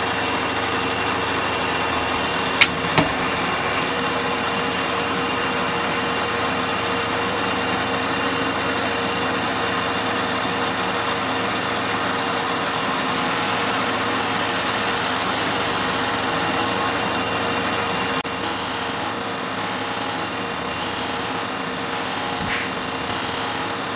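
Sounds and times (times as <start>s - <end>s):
milling machine cutting metal: 0.0s - 6.0s, 12.0s - 23.9s.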